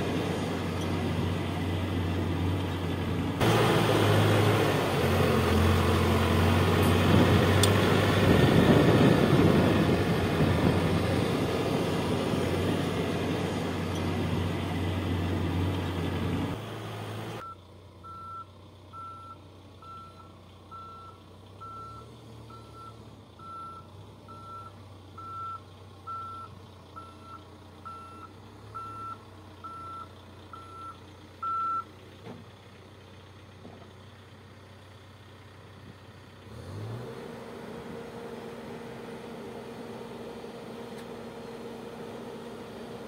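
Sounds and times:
diesel engine running: 0:00.0 - 0:43.0
reversing alarm beeping: 0:17.4 - 0:31.9.

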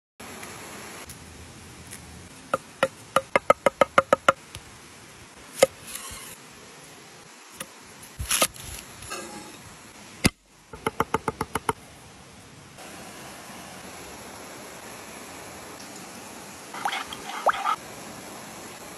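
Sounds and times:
stream rushing: 0:12.8 - 0:18.9.

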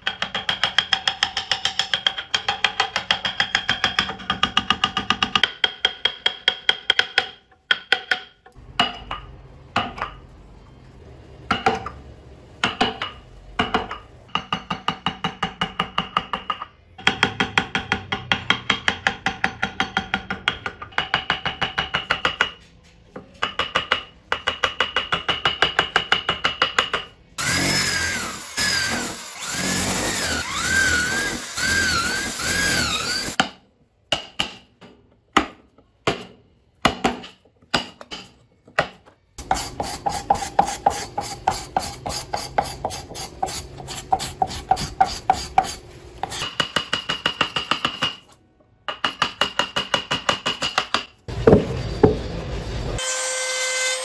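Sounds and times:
carving tools tapping on wood: 0:00.0 - 0:10.2, 0:12.6 - 0:22.6, 0:23.3 - 0:27.1
drill boring into wood: 0:27.4 - 0:33.4.

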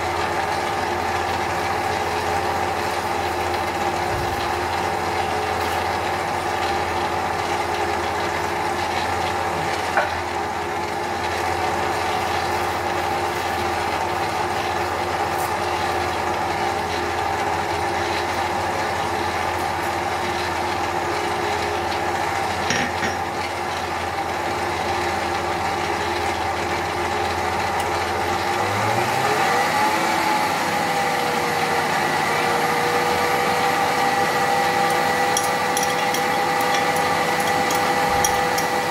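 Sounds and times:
electric stand mixer whisking: 0:00.0 - 0:38.9.

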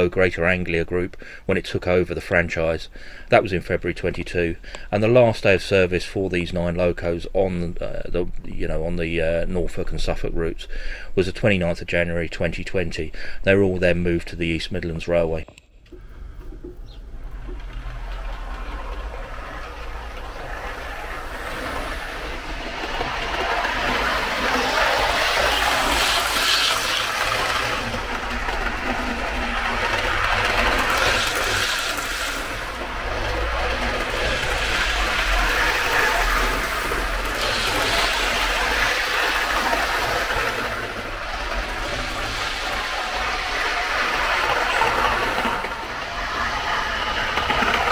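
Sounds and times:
model train running on track: 0:17.2 - 0:47.9.

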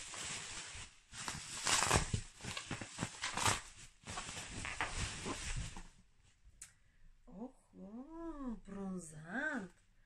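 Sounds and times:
packaging rustling and crinkling: 0:00.0 - 0:06.0.

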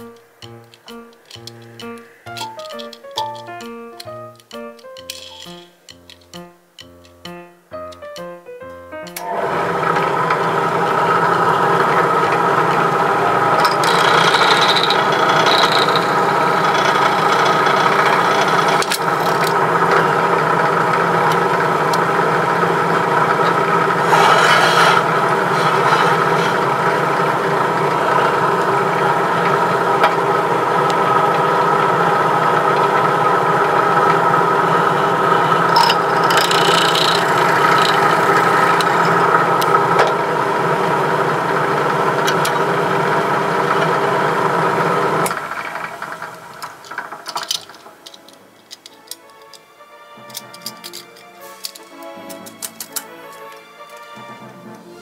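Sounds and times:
drill press motor running: 0:09.2 - 0:48.2
drill bit cutting into metal: 0:13.1 - 0:22.2, 0:22.9 - 0:27.1, 0:35.4 - 0:40.1.

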